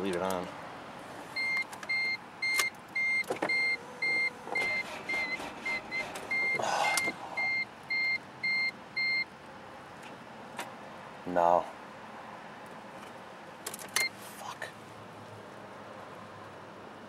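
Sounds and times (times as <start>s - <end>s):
car warning chime beeping: 1.4s - 9.3s.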